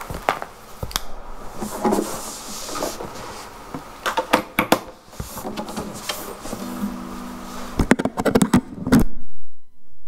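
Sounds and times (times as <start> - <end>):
handling rustling and knocks: 1.6 - 9.0.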